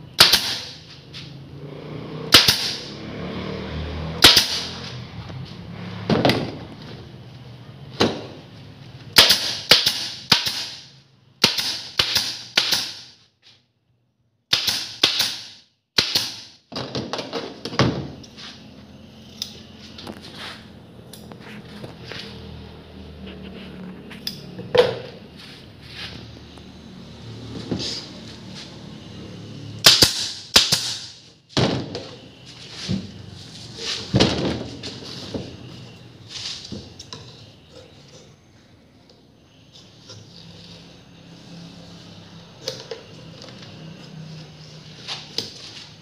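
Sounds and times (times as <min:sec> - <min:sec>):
pneumatic staple gun firing: 0:00.2 - 0:00.8, 0:02.3 - 0:02.9, 0:04.2 - 0:04.8, 0:09.2 - 0:13.1, 0:14.5 - 0:16.5, 0:29.8 - 0:31.2.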